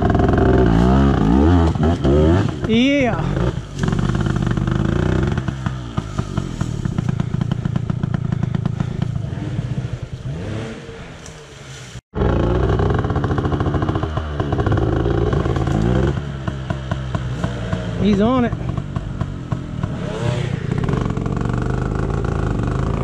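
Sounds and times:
dirt bike engine revving: 0.0s - 23.0s.

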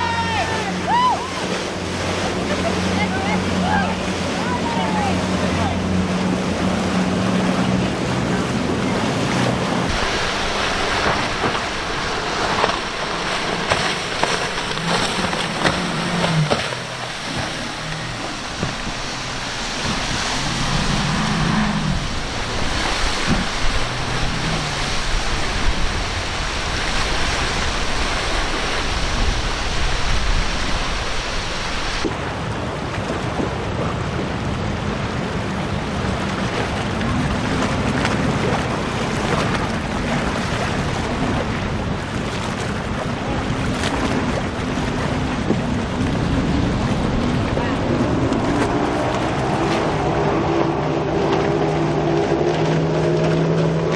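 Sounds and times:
boat engines droning: 0.0s - 53.9s
waves and wake washing: 0.0s - 53.9s
wind noise on microphone: 17.2s - 32.6s.

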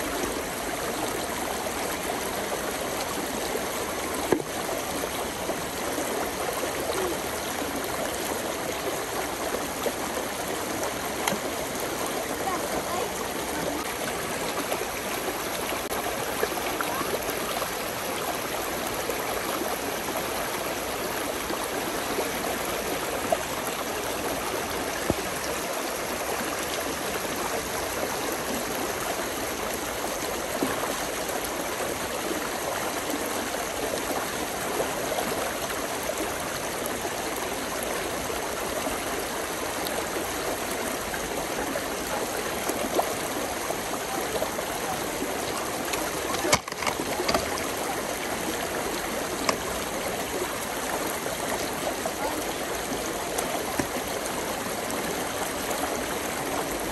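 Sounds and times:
brook babbling: 0.0s - 56.9s
water splashes: 0.0s - 56.9s.

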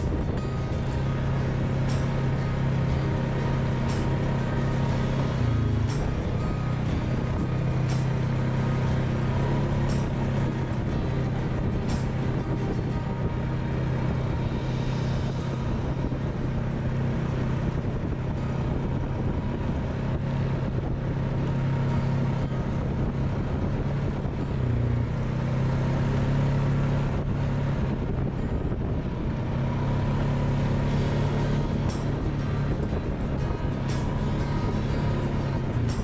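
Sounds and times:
atv engine running: 0.0s - 36.0s.

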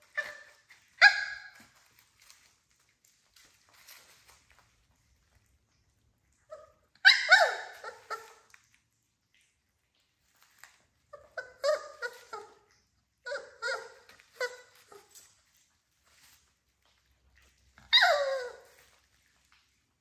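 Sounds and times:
puppies whimpering and yelping: 0.0s - 2.5s, 6.4s - 8.6s, 11.1s - 15.6s, 17.8s - 19.3s.

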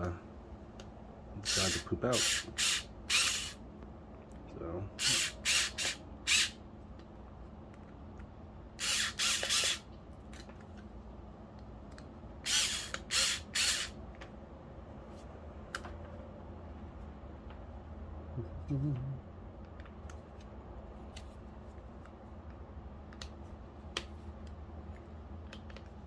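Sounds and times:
electric screwdriver bursts: 1.4s - 3.6s, 5.0s - 6.6s, 8.8s - 9.9s, 12.4s - 14.0s.

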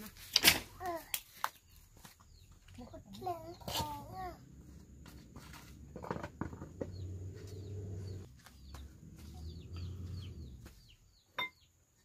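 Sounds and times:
chicks peeping: 6.8s - 11.2s.

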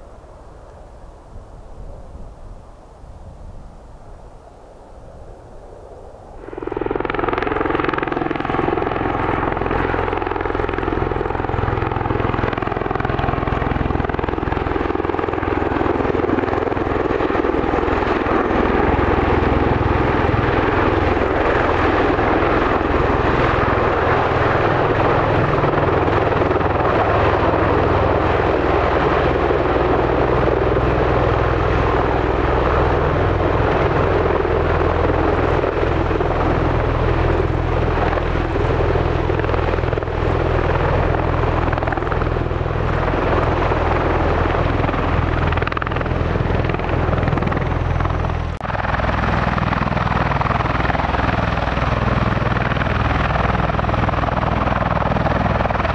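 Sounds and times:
aircraft turbine whine: 0.0s - 55.9s
low drone of proprotors: 0.0s - 55.9s.

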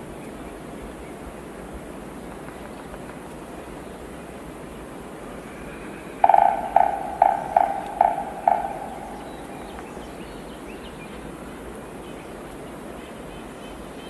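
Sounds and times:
pitched ringing knocks: 6.2s - 9.9s.

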